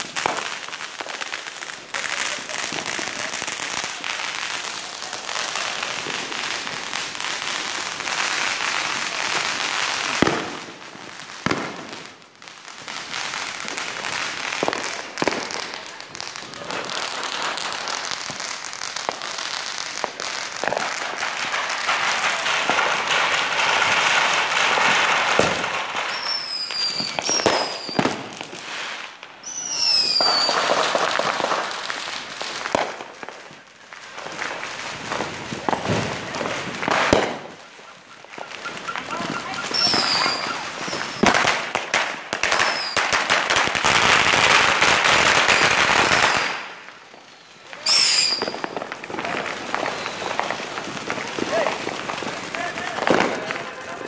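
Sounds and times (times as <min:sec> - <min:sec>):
firework bangs and pops: 0:00.0 - 0:54.0
firework fountain hissing and crackling: 0:00.0 - 0:54.0
falling firework whistles: 0:21.6 - 0:31.7, 0:35.1 - 0:43.3, 0:43.9 - 0:52.4.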